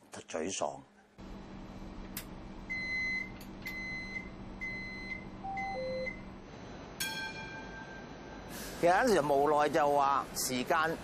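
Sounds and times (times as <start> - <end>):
steady electrical hum: 0.0 - 11.0
high electronic beeps: 4.7 - 6.2.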